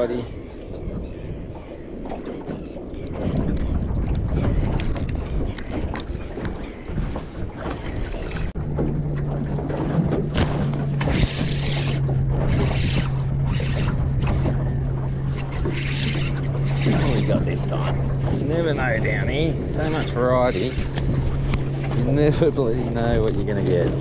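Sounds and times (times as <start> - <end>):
wind and water noise: 0.0 - 24.0.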